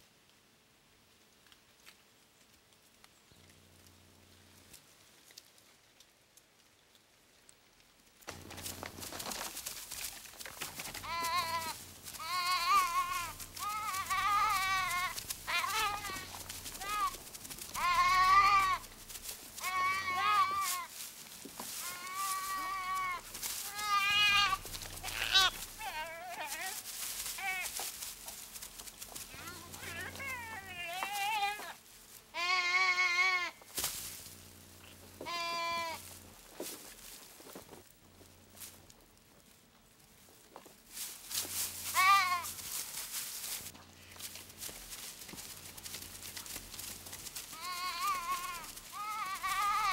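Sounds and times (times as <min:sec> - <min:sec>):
sheep bleating in alarm: 0:10.7 - 0:20.9, 0:21.8 - 0:27.9, 0:29.3 - 0:33.6, 0:34.8 - 0:36.2, 0:41.8 - 0:42.6, 0:47.5 - 0:49.9.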